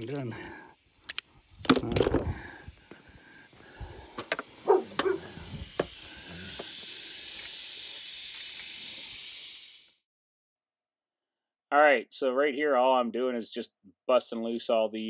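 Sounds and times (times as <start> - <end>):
metal tool clicks and clinks: 1.1 - 2.3
steady high hiss: 2.6 - 10.0.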